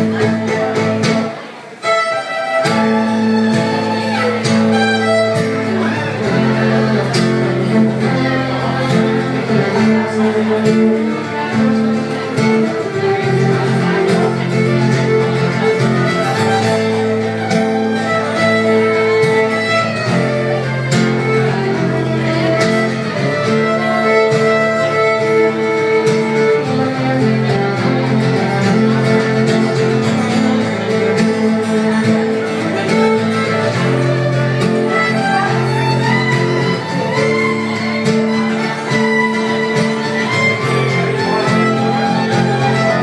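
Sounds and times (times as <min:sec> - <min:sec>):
acoustic guitar strummed: 0:00.0 - 0:43.0
fiddle melody: 0:00.0 - 0:43.0.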